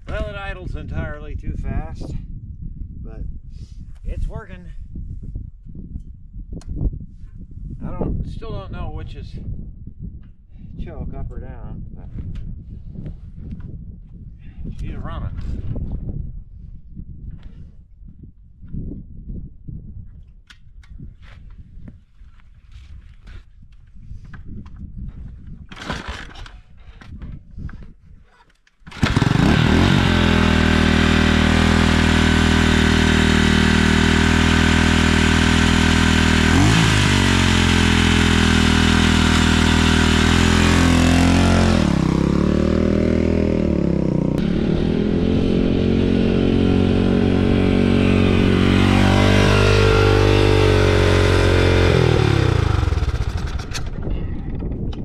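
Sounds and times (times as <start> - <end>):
engine kickstart kicks: 25.7 - 26.6, 28.9 - 30.1, 52.5 - 54.0
motorcycle engine revving: 28.9 - 54.0.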